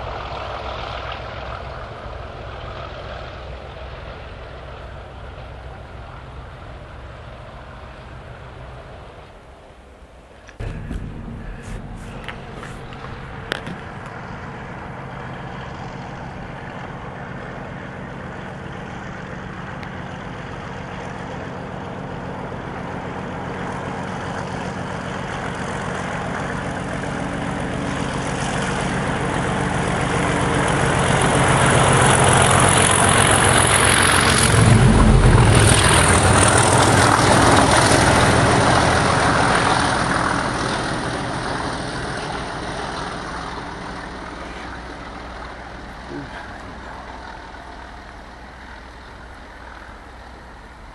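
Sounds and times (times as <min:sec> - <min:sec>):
diesel locomotive engine drone: 0:00.0 - 0:50.9
train wheel noise: 0:10.4 - 0:50.9.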